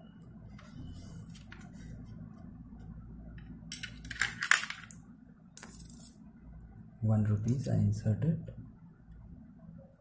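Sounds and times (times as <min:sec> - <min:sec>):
steady low hum: 0:00.0 - 0:10.0
coin rattling into coin acceptor: 0:03.7 - 0:05.0.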